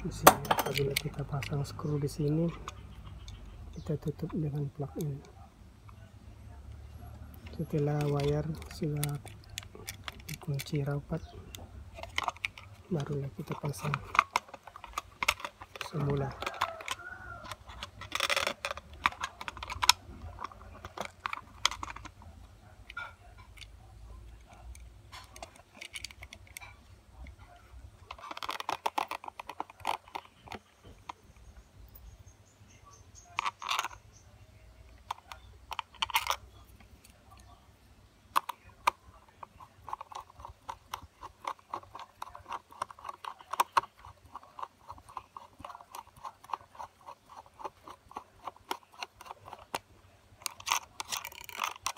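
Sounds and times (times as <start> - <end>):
screwdriver turning screws: 39.6 - 51.9.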